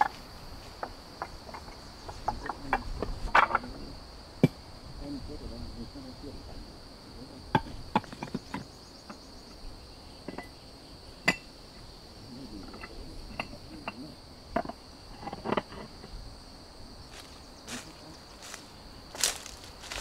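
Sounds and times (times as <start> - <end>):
high insect drone: 0.0 - 20.0
stone slabs knocking together: 0.8 - 3.8.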